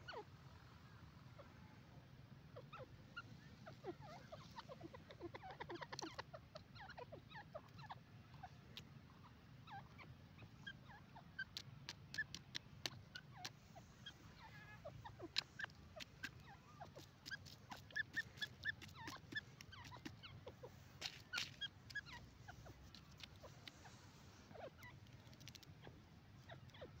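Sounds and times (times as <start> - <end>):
bird chirping and squeaking: 0.0 - 0.2, 2.6 - 27.0
small sharp clicks: 11.4 - 13.6, 21.0 - 22.2, 25.0 - 25.7.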